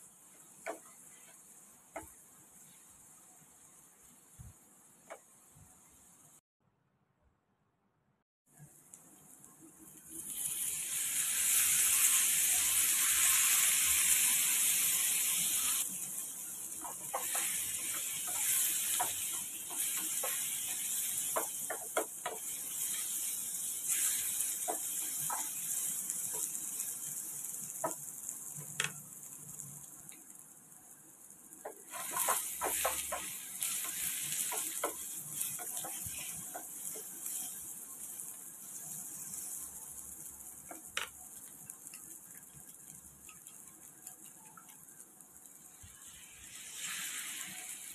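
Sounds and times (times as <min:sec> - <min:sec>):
vegetables sizzling in oil: 0:00.0 - 0:06.4, 0:08.5 - 0:47.9
wooden spatula scraping pan: 0:31.8 - 0:37.6.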